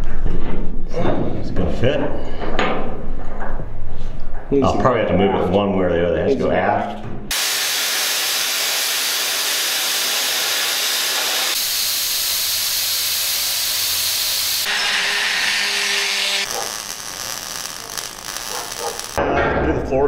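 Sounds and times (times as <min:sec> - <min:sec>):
plasma cutter hissing: 0:07.3 - 0:19.2.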